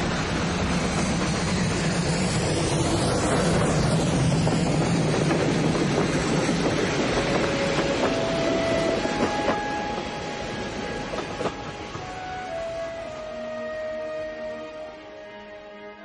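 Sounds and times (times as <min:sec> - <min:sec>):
train wheels clattering on rails: 0:00.0 - 0:12.2
clacks over rail joints: 0:03.2 - 0:10.2, 0:10.9 - 0:12.1.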